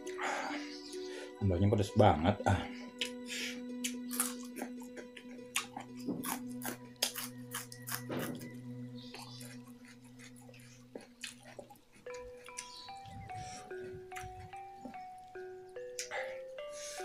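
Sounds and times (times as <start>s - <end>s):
crunching and chewing: 3.8s - 16.9s.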